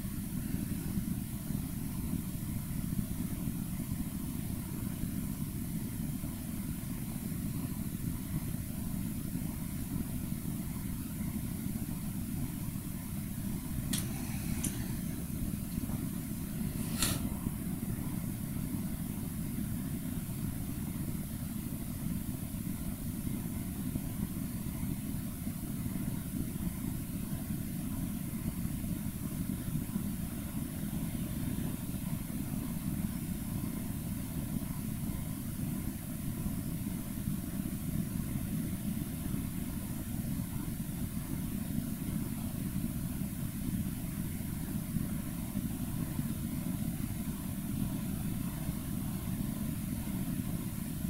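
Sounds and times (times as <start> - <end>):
steady low rumble: 0.0 - 26.8
faint hiss: 0.0 - 51.0.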